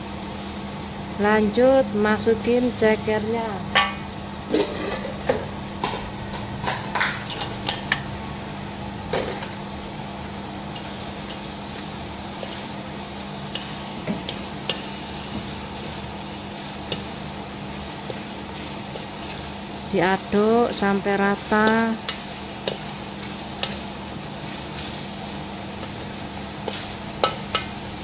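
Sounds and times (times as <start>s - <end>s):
kitchen extractor blower humming: 0.0s - 28.0s
wooden spatula knocking a wok: 3.7s - 8.1s, 26.6s - 27.8s.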